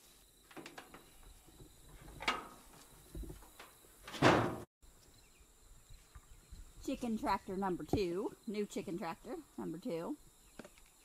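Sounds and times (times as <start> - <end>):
wooden lid clattering shut: 4.1 - 4.6.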